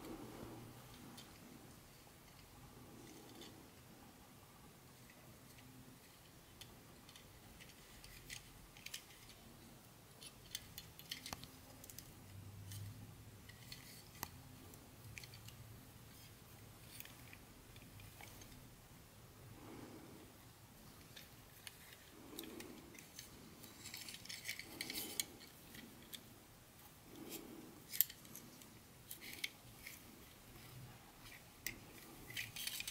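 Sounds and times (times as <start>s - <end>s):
low steady hum: 0.0s - 32.9s
plastic parts and packaging crinkling: 10.1s - 18.7s, 20.9s - 26.4s, 27.2s - 32.9s.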